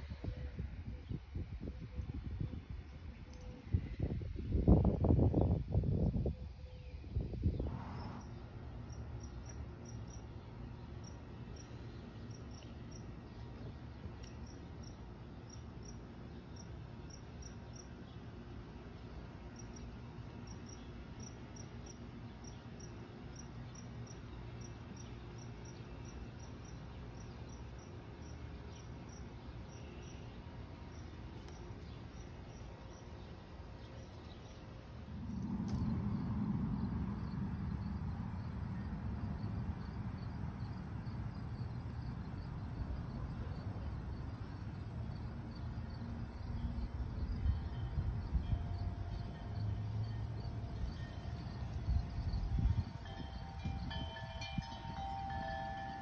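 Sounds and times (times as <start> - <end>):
cricket chirping: 7.7 - 13.4, 19.0 - 56.0
low rushing noise: 34.7 - 42.2.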